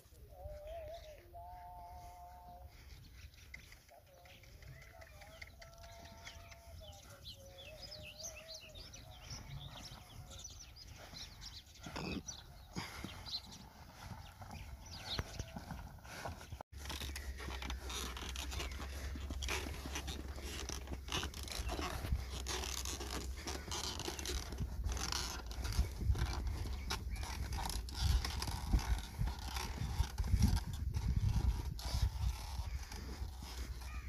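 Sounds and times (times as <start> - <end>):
hoof falls on dirt: 12.7 - 34.0.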